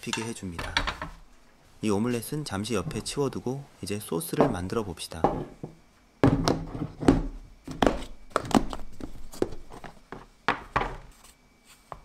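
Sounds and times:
dishes knocking on wooden table: 4.4 - 4.6, 5.2 - 7.3.

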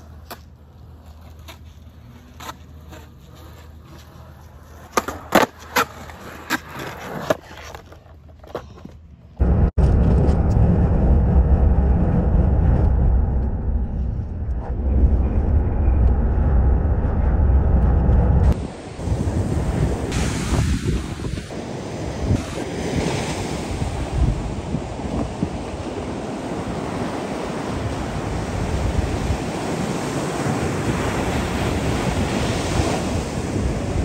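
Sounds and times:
car road and wind rumble: 9.4 - 22.6.

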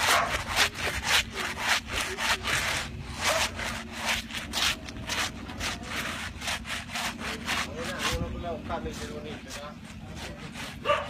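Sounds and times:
soap rasping on wet cloth: 0.0 - 11.0.

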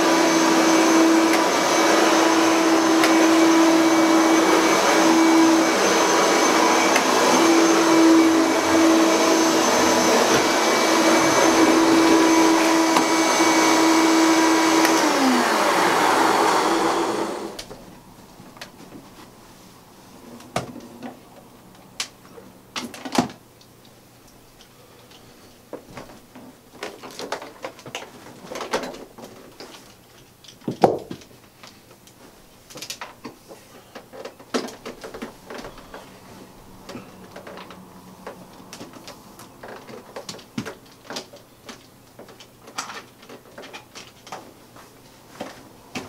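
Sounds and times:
vacuum cleaner handling clicks: 14.7 - 15.0.

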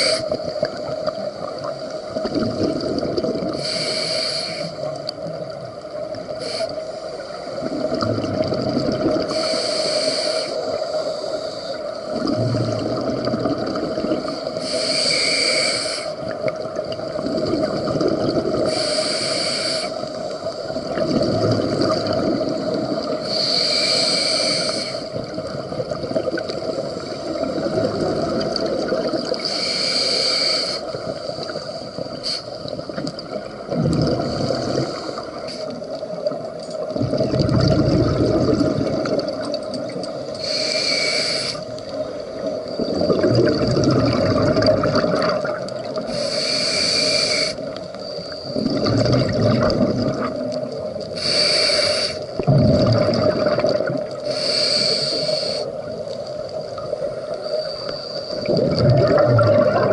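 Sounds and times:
regulator air hiss: 0.0 - 0.4, 3.6 - 4.9, 6.3 - 7.6, 9.3 - 12.1, 14.2 - 16.3, 18.7 - 20.4, 23.2 - 25.2, 29.4 - 32.8, 40.2 - 41.8, 46.1 - 48.6, 51.1 - 52.4, 54.2 - 55.9
exhaled bubbles rumbling: 0.0 - 3.6, 7.5 - 9.4, 12.1 - 14.6, 16.2 - 18.7, 20.4 - 23.2, 25.1 - 29.5, 30.9 - 40.3, 41.6 - 46.2, 48.4 - 51.3, 52.2 - 54.3, 58.3 - 59.9.

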